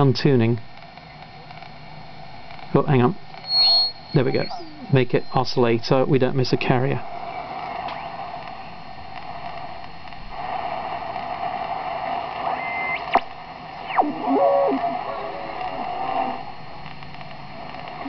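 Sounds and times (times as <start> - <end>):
radio band noise rushing: 0.8 - 18.0
heterodyne whistles sweeping in pitch: 3.4 - 5.4.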